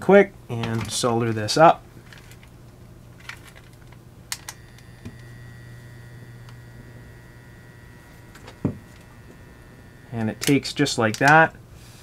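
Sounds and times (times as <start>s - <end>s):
low steady hum: 0.0s - 12.0s
soldering gun high-pitched whine: 4.4s - 10.9s.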